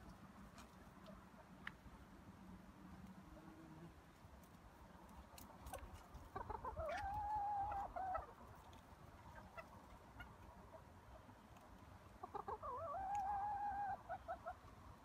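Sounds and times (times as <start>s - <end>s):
hen clucking: 5.7s - 8.6s, 9.2s - 11.3s, 12.2s - 14.7s.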